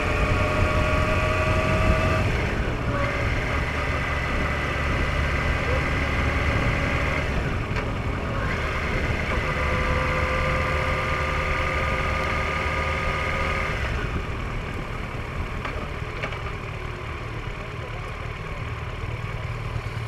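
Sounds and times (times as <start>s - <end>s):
motorcycle engine running: 0.0s - 20.0s
wind and road noise: 0.0s - 20.0s.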